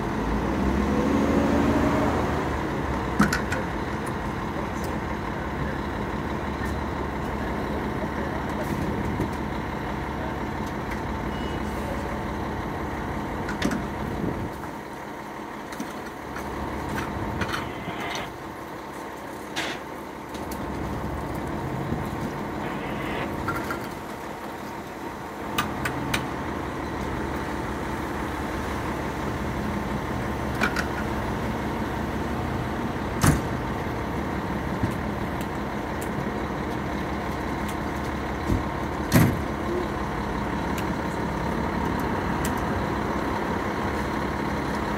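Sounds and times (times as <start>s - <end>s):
diesel engine idling: 0.0s - 44.9s.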